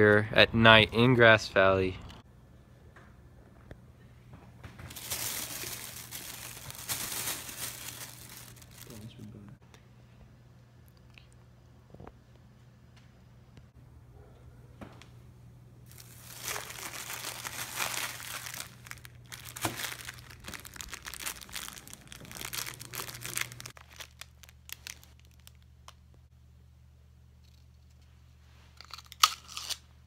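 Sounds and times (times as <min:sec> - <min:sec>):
cellophane wrapper crinkling: 0:04.9 - 0:09.1, 0:15.9 - 0:26.1.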